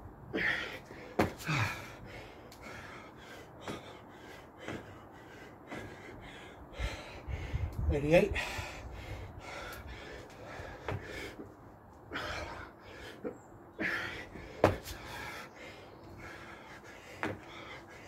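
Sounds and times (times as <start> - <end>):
man breathing hard and gasping: 0.2 - 18.0
hands and feet thudding on paving: 0.4 - 6.2, 9.5 - 11.5, 12.1 - 18.0.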